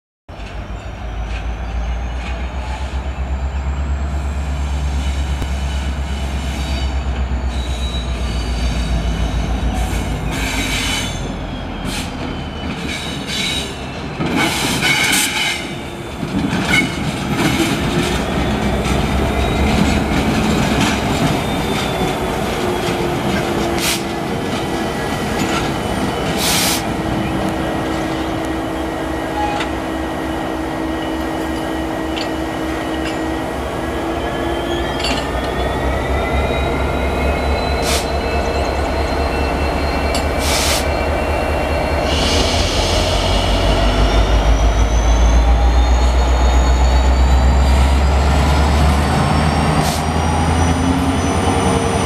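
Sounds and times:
diesel locomotive rumble: 0.3 - 52.0
wheels squealing on rail: 0.3 - 52.0.

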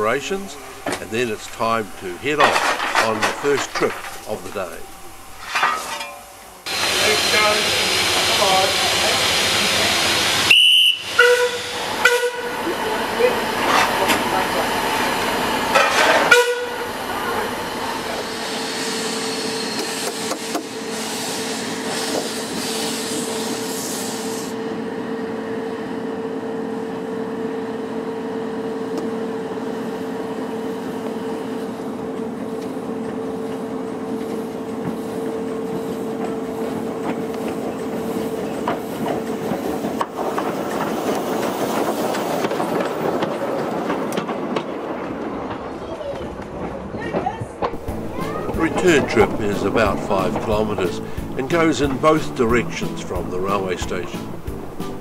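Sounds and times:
steam train rumbling: 0.0 - 55.0
held whistle tone: 10.5 - 11.6.

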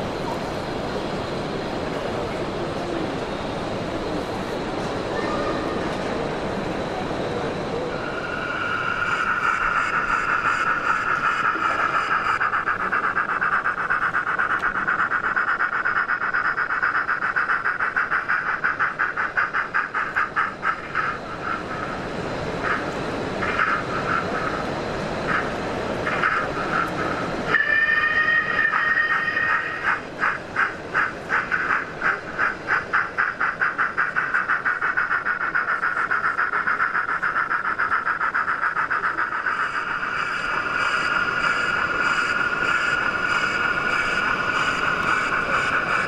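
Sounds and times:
model steam locomotive hissing: 0.0 - 46.0
steam exhaust chuffs: 5.7 - 46.0
short train whistle: 27.5 - 29.5.

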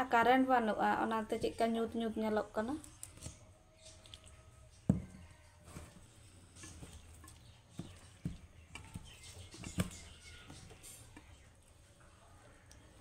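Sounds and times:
fingers mixing rice: 2.8 - 13.0.

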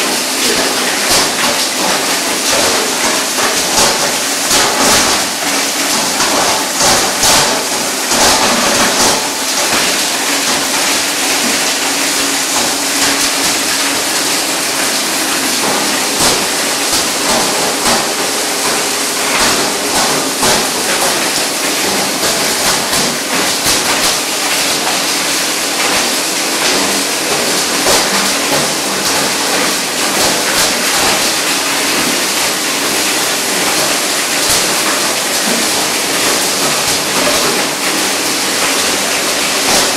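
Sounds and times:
plastic granulator shattering pipe: 0.0 - 39.9.

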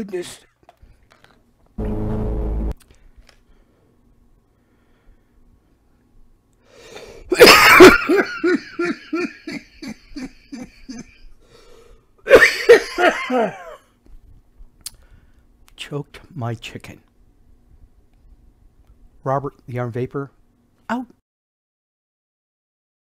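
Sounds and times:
man coughing: 7.3 - 11.3, 12.2 - 13.8.

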